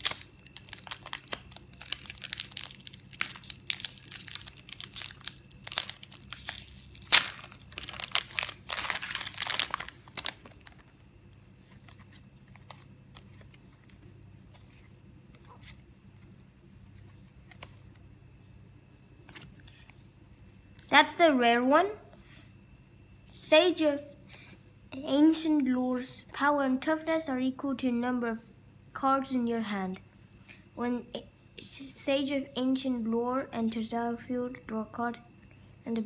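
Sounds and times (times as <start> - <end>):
foil wrapper tearing and crinkling: 0.0 - 10.9.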